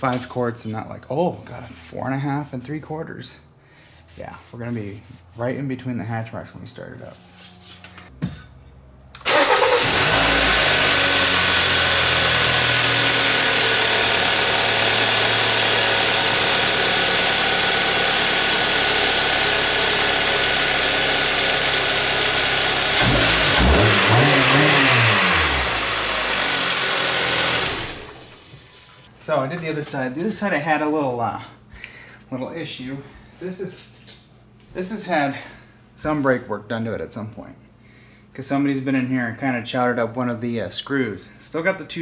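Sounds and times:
car engine idling: 0:09.2 - 0:28.5
car engine revving: 0:09.3 - 0:28.5.

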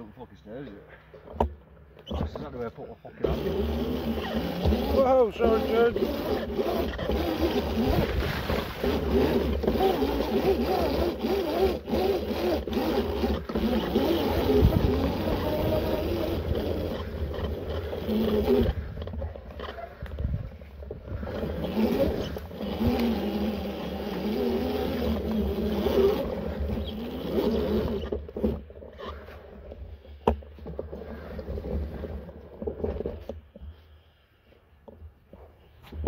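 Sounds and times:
electric motor whine: 0:03.2 - 0:19.2, 0:21.1 - 0:28.6
wind rumble on microphone: 0:18.4 - 0:22.3.

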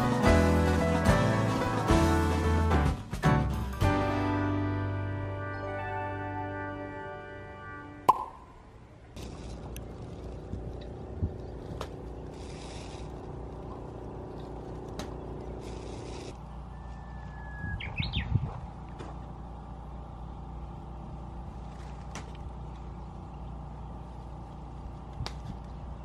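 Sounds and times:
low engine-like hum and rumble: 0:07.1 - 0:26.0
bird singing: 0:16.4 - 0:18.4.

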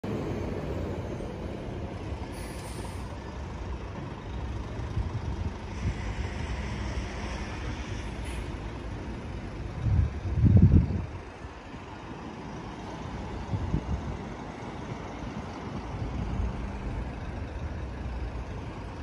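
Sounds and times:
low rumble of vehicle engines: 0:00.0 - 0:19.0
passing vehicle hiss: 0:00.1 - 0:19.0.

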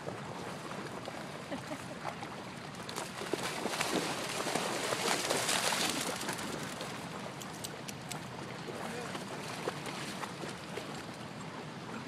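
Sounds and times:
water splashing in puddle: 0:02.0 - 0:11.0.

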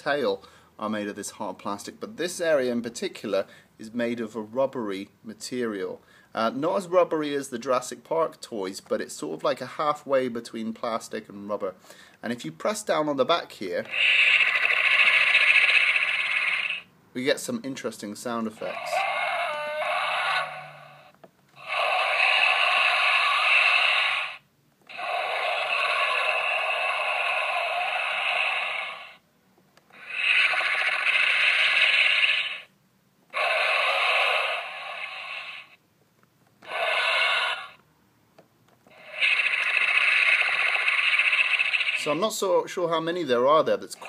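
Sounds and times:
toy dinosaur roars: 0:13.8 - 0:16.9, 0:18.6 - 0:29.2, 0:29.9 - 0:32.7, 0:33.3 - 0:35.8, 0:36.6 - 0:37.8, 0:38.9 - 0:42.2.

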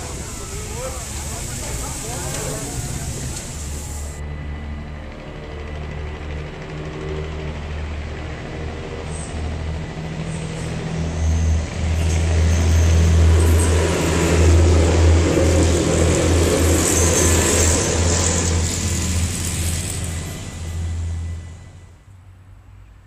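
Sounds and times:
train wheels rumbling on rails: 0:00.0 - 0:22.0
diesel engines droning: 0:00.0 - 0:22.7.

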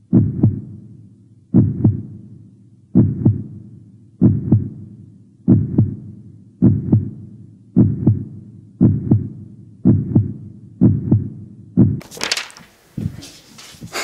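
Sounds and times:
heartbeat thumps: 0:00.0 - 0:00.8, 0:01.5 - 0:02.2, 0:03.0 - 0:03.6, 0:04.2 - 0:04.9, 0:05.5 - 0:12.0
noisy hiss and rustle: 0:12.0 - 0:14.0.

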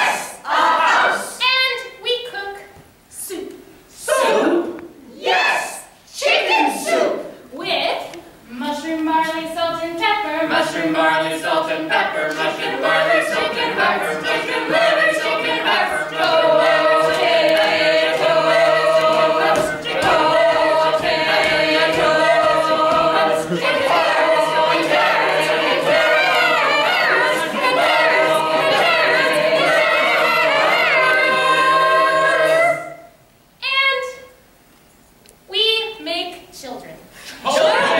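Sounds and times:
mixed choir singing: 0:00.0 - 0:01.4, 0:04.0 - 0:07.4, 0:09.6 - 0:33.1, 0:37.4 - 0:37.9.

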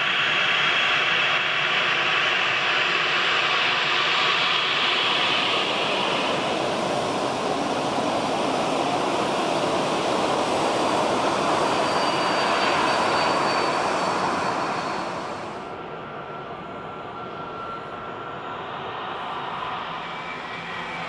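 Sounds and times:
faint high whine: 0:00.0 - 0:21.0
jet engines rushing: 0:01.4 - 0:16.3.

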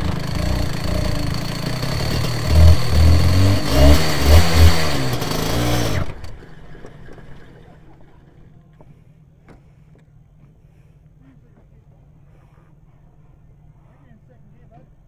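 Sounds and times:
two-stroke kart engine revving: 0:00.0 - 0:08.6.

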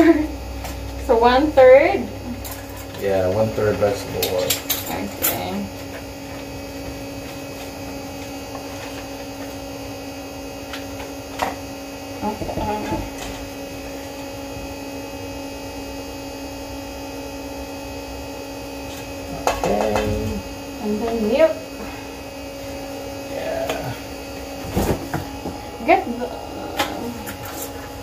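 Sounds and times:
electrical hum: 0:00.0 - 0:28.0.

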